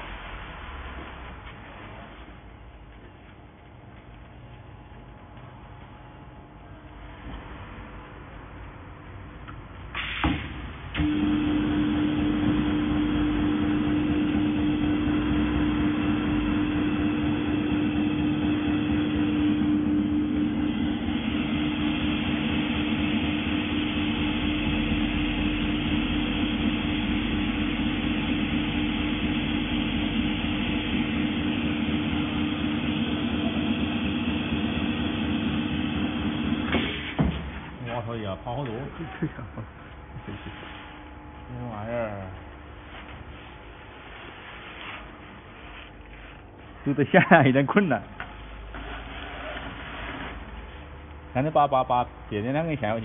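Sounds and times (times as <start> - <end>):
welding machine buzzing: 11.0 - 37.2.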